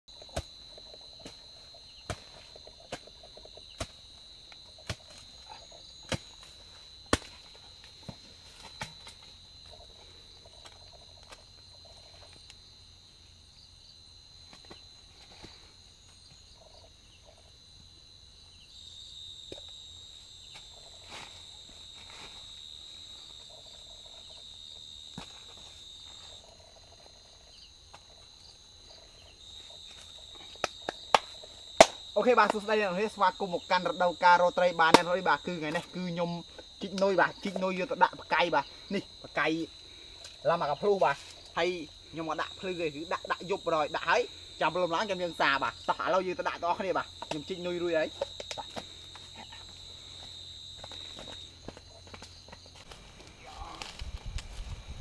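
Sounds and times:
night insects chirping: 0.1s - 55.0s
hoe chopping into hard soil: 7.1s - 7.5s
scrapes and clicks of soil clods: 47.2s - 55.0s.

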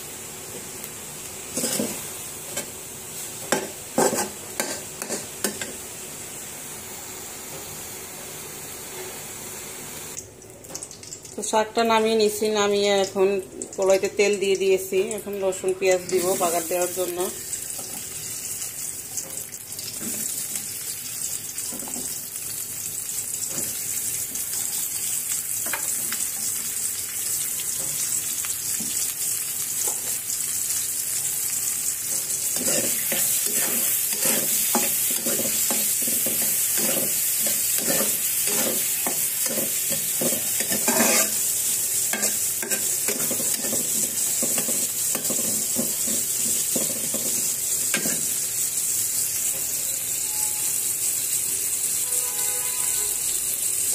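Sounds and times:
onion sizzling in hot oil: 0.0s - 53.9s
spatula scraping pan: 1.6s - 2.7s, 3.5s - 5.7s, 32.1s - 48.3s.

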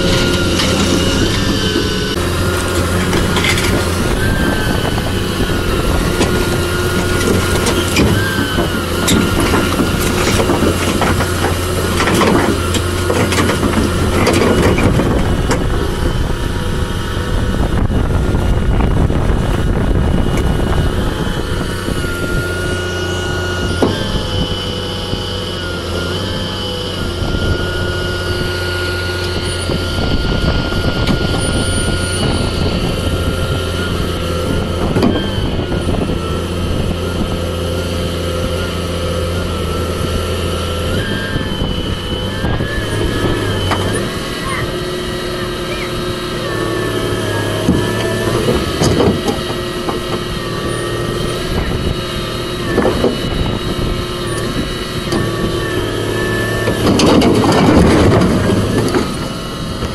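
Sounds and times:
steel tracks clanking: 0.0s - 16.6s, 42.1s - 59.9s
diesel engine running under load: 0.0s - 59.9s.

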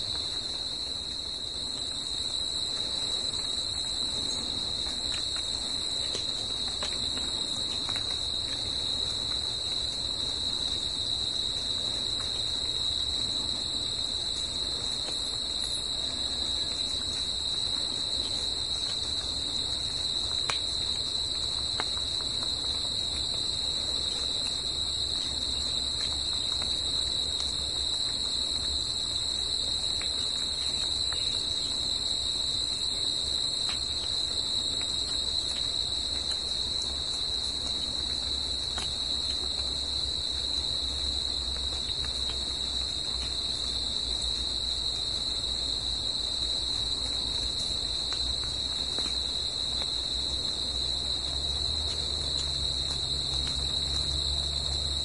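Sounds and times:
crickets chirping: 0.0s - 55.0s.

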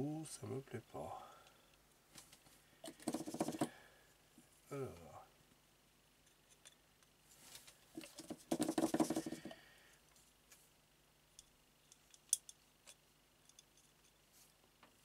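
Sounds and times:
brush ticking on plastic: 8.2s - 9.6s.

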